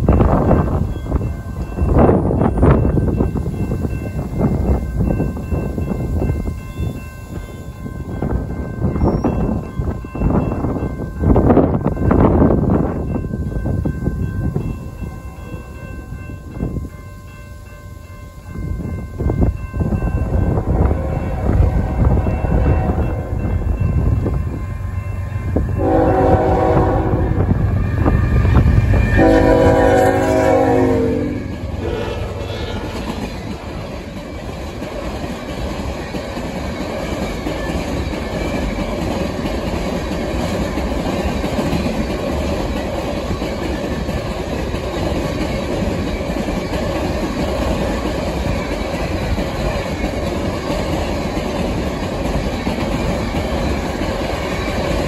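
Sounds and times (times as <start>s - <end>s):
train wheels clacking on rails: 0.0s - 55.0s
locomotive engine rumble: 9.5s - 36.6s
locomotive air horn blasts: 25.8s - 33.2s.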